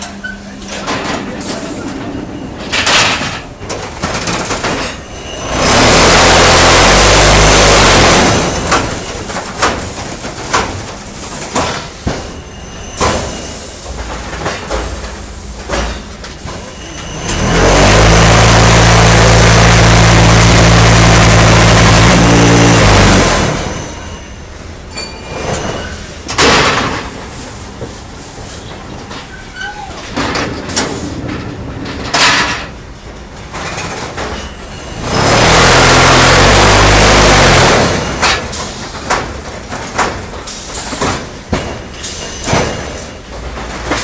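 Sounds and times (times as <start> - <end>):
metal knocks and clanks: 0.0 - 5.2, 38.1 - 44.0
machine low rumbling hum: 17.2 - 24.2.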